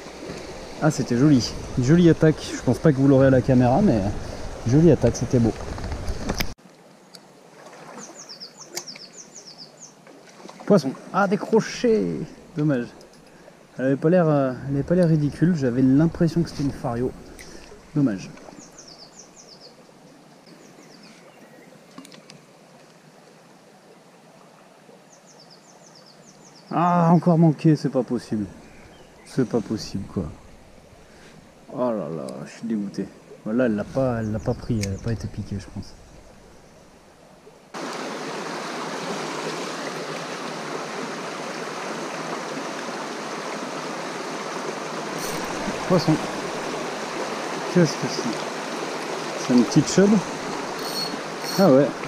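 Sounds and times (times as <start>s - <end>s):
stream running over riffles: 0.0s - 52.0s
bird chirps: 50.8s - 51.7s.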